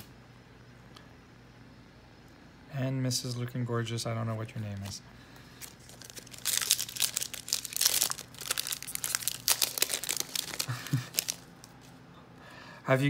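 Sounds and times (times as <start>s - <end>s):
foil wrapper tearing and crinkling: 5.6s - 11.8s.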